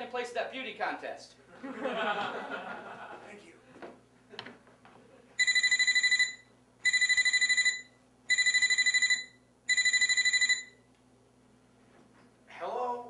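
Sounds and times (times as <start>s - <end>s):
phone ringing with electronic trill: 5.4s - 10.8s.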